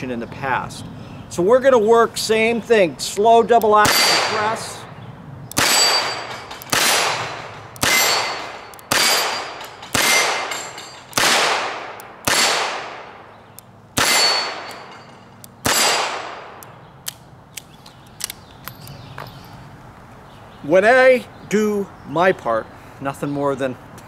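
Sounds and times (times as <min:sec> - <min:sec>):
steel plates ringing: 0:05.6 - 0:11.2, 0:14.0 - 0:15.9.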